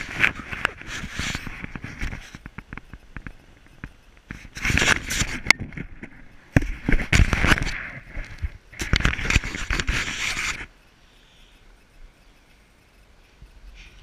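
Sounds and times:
rumbling and crackling microphone noise: 0.0s - 11.0s.

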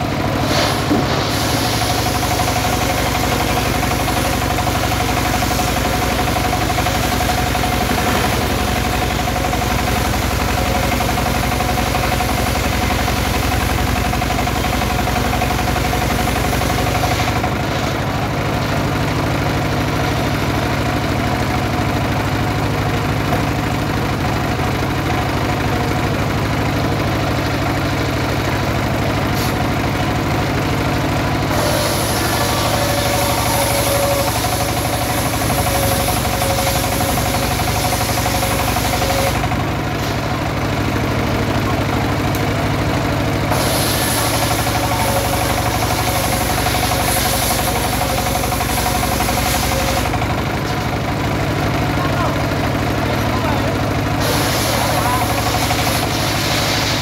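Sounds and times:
diesel engine running: 0.0s - 57.0s
saw cutting log: 0.2s - 18.2s, 29.2s - 29.8s, 30.4s - 40.3s, 43.5s - 50.9s, 54.0s - 57.0s.

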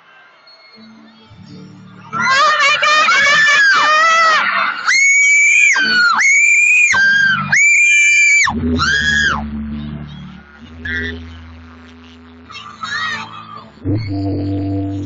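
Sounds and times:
fans screaming: 2.1s - 9.4s.

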